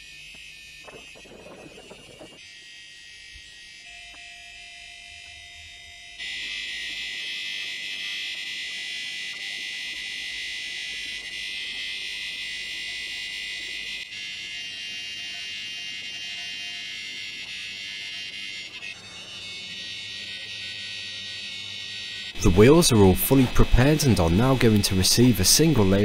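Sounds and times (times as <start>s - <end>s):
vapour jet hissing: 0.8s - 2.4s.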